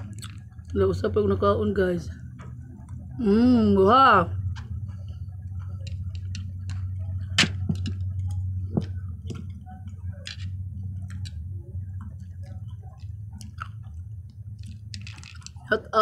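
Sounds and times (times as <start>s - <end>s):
low steady hum: 0.0s - 16.0s
chopsticks clicking: 5.8s - 6.8s, 10.2s - 11.4s, 14.6s - 15.6s.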